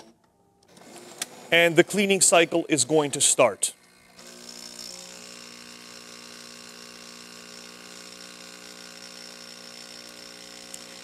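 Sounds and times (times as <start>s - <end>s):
espresso machine pump humming: 3.8s - 11.0s.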